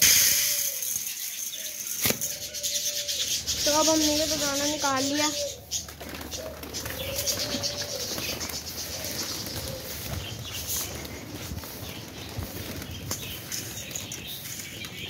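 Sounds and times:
pigeons flapping wings: 3.7 - 15.0.

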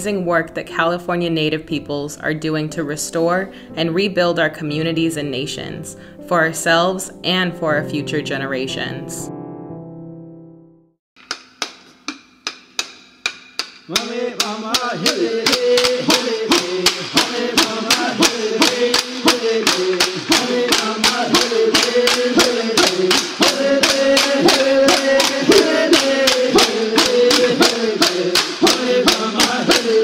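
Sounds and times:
sharp clicking beat: 11.2 - 30.0
voices chanting a song: 13.9 - 30.0.

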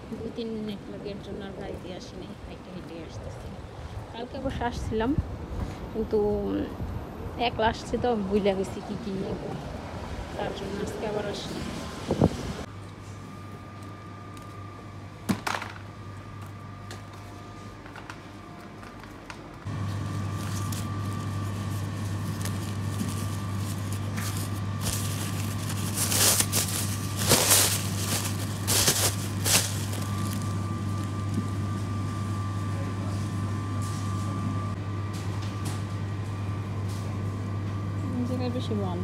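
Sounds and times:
steady low hum: 0.0 - 39.0
plastic bag crinkling: 20.1 - 31.8.

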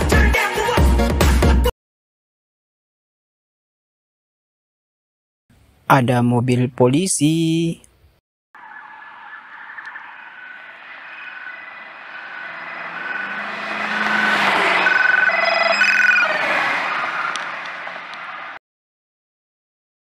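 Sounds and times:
police sirens: 8.6 - 18.6
road and engine noise: 8.6 - 18.6.

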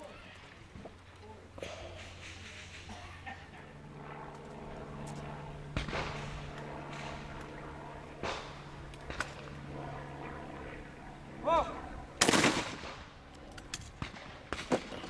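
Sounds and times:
steady low hum: 0.0 - 15.0
distant shotgun fire: 5.7 - 7.4, 8.2 - 9.4, 12.2 - 13.1, 13.9 - 15.0.

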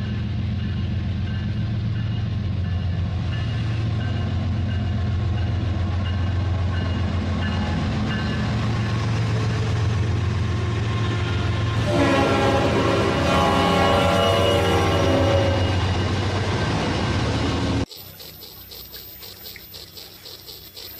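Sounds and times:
toy train motor hum: 17.8 - 20.9.

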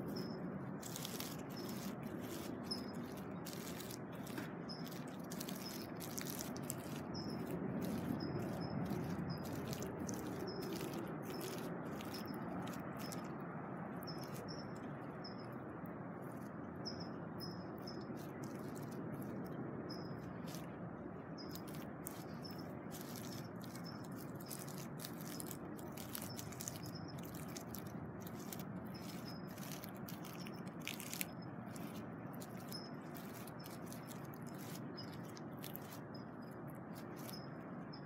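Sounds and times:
cat kneading a pillow: 0.0 - 13.2
high bird chirps: 0.0 - 15.6, 16.2 - 20.7.

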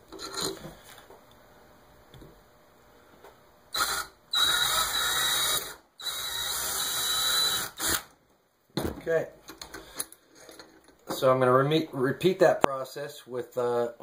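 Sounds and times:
power drill whining: 3.7 - 8.1.

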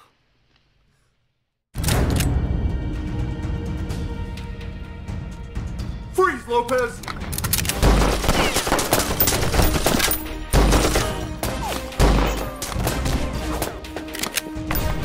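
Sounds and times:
dramatic music: 1.8 - 15.0
rapid pistol gunfire: 7.7 - 11.3.

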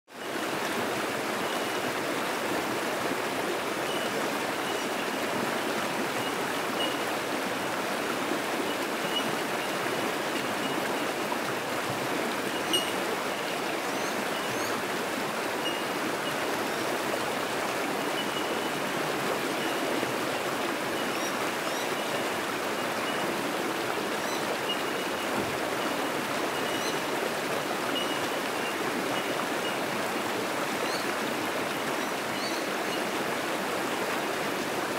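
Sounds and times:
creek rapids rushing over rocks: 0.1 - 34.9
bellbird high notes: 12.6 - 13.0.

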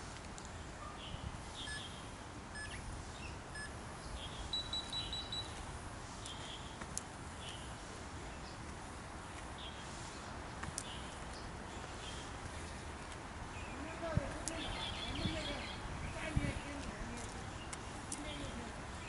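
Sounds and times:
low outdoor background: 0.0 - 19.0
faint bird chirps: 0.8 - 5.6
short electronic beeps: 1.6 - 1.9, 2.6 - 2.8, 3.5 - 3.8, 4.5 - 5.6.

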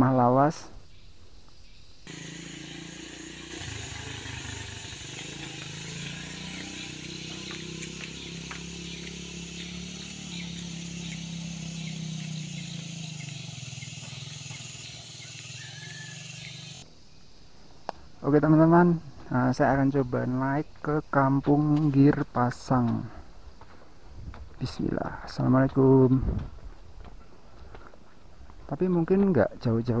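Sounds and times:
outdoor background hiss: 0.0 - 30.0
motorcycle engine running: 2.1 - 16.8.

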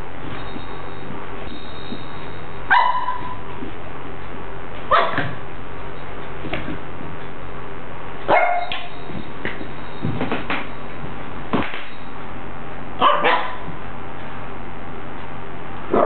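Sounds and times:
small dog barking: 2.7 - 3.4, 4.9 - 5.4, 8.3 - 8.9, 13.0 - 13.7.

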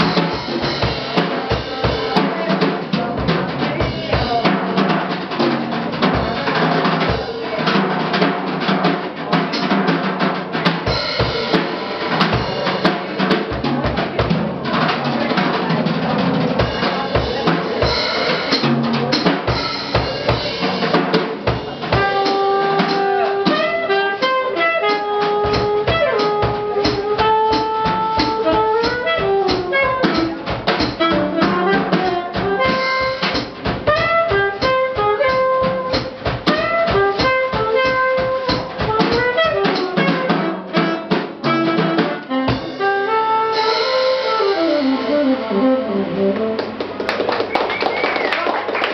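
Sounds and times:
drum kit playing: 0.0 - 48.9
saxophone melody: 21.8 - 47.0.

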